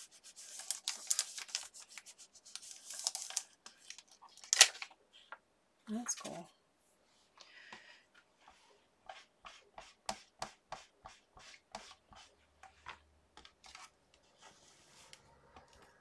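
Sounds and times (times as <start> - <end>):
soft rubbing: 13.7 - 16.0.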